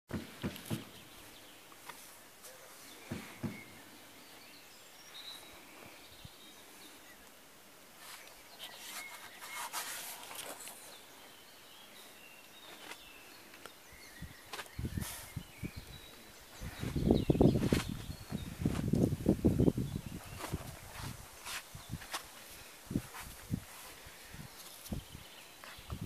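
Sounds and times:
rustling: 7.9 - 11.2, 14.4 - 26.0.

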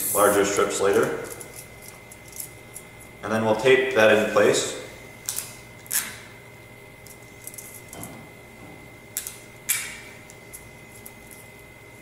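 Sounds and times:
tape ripping off dispenser: 5.2 - 6.2.

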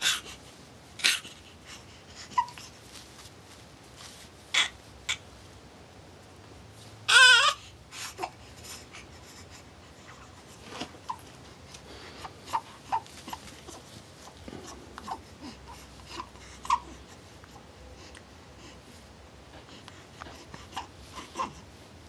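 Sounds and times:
newborn baby crying: 4.5 - 5.2, 7.1 - 8.5, 14.6 - 17.2, 20.6 - 21.7.

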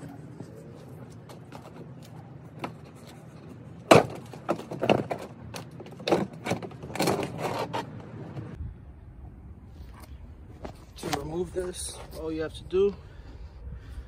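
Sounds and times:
plastic bumper cracking: 3.9 - 7.8.

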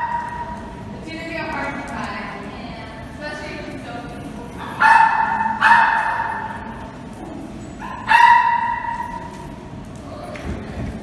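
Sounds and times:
dog barking: 4.8 - 6.6, 7.8 - 9.3.

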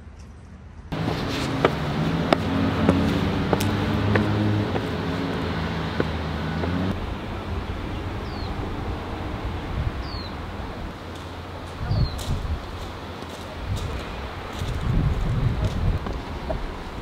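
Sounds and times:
open-air background noise: 0.0 - 17.0
steady low hum: 0.9 - 17.0.

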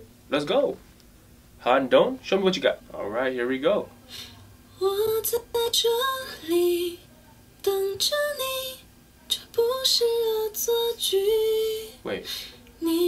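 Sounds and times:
quiet musical accompaniment: 1.6 - 13.0
woman singing: 4.3 - 13.0.

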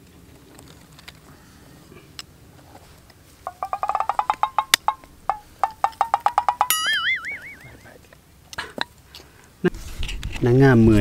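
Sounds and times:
clicks rising in pitch: 3.5 - 8.0
wobbling warbling tone: 3.5 - 8.0.

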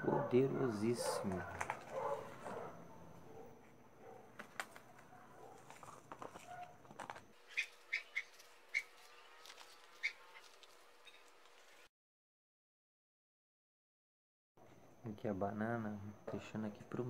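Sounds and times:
soil rustling: 4.4 - 11.9.

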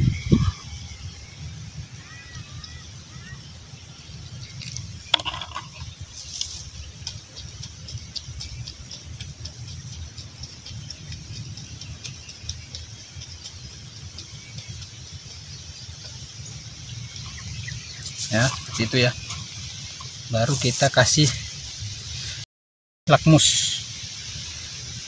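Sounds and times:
insect buzz: 0.0 - 22.4, 23.1 - 25.0
stick scratching wet soil: 4.6 - 14.8, 17.4 - 20.8.

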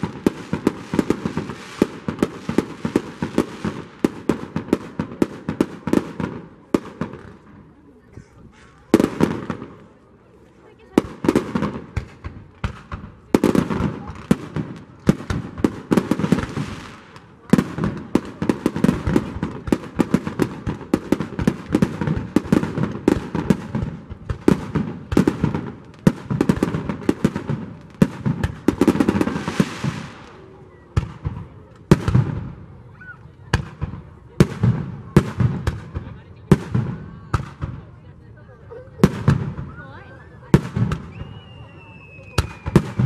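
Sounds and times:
fireworks crackling hiss: 0.0 - 7.4, 11.0 - 32.5.

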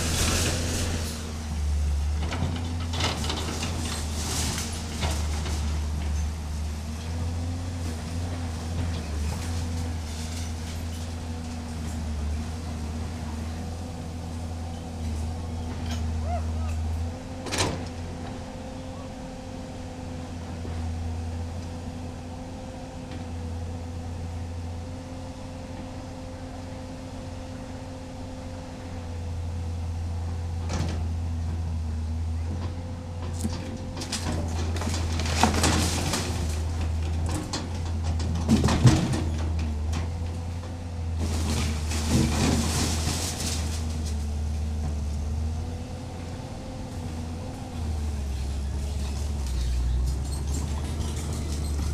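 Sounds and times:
diesel engine running: 0.0 - 51.9
debris clattering and crashing: 2.3 - 6.3, 33.4 - 40.2, 41.1 - 44.7, 47.8 - 51.9.

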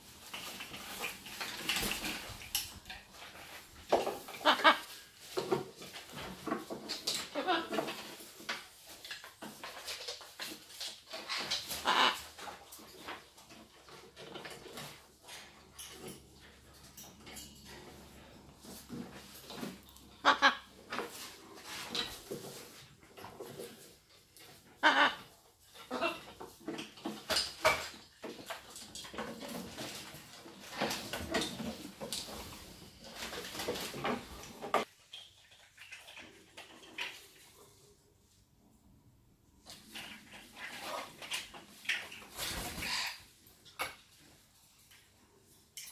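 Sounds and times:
harsh macaw calls: 4.4 - 4.9, 11.8 - 12.3, 20.2 - 20.7, 24.8 - 25.3.

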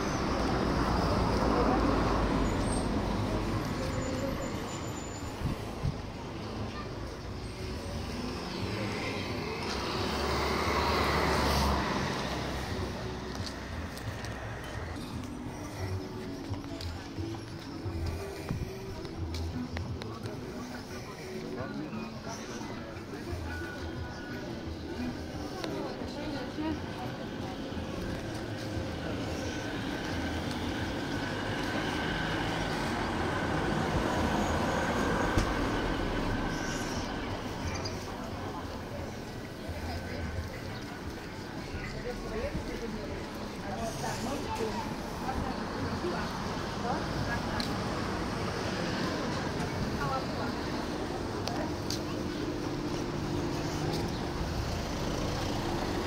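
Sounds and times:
street noise: 0.0 - 56.0
vehicle passing: 7.5 - 22.3.

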